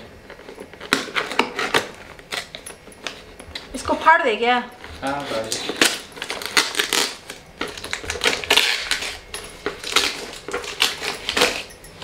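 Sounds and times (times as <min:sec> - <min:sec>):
cardboard and tape ripping: 0:00.4 - 0:02.6, 0:05.0 - 0:11.7.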